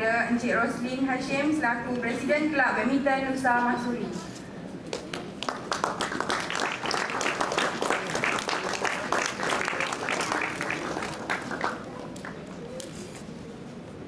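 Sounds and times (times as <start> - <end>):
people applauding: 4.9 - 12.6.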